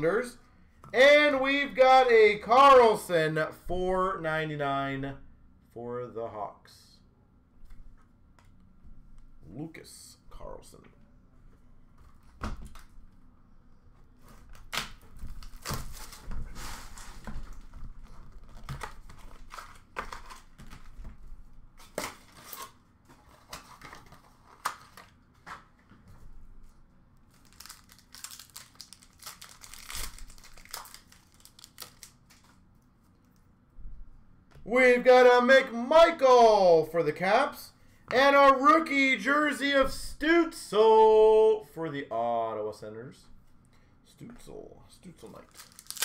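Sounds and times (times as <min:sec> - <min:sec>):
wrapper tearing and crinkling: 0:27.3 - 0:32.5, 0:45.4 - 0:46.0.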